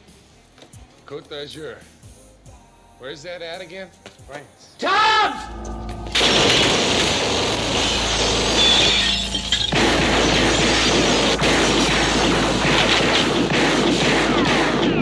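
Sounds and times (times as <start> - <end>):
glass shattering: 5.6 - 15.0
rapid gunfire: 9.6 - 15.0.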